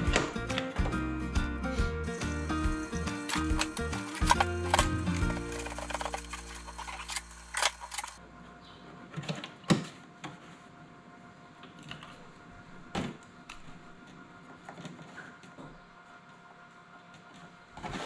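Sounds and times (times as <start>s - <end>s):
background music chord: 0.0s - 6.6s
hard plastic handling: 3.2s - 8.2s.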